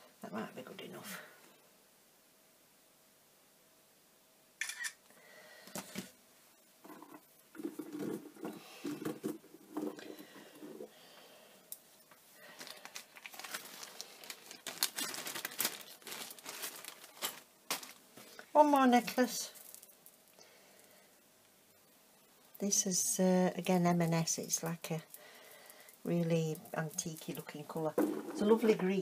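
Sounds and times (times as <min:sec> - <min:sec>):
necklace handling rustle: 0:12.0 - 0:20.4, 0:23.9 - 0:29.0
beads clicking and clattering: 0:12.6 - 0:18.0, 0:19.1 - 0:20.2.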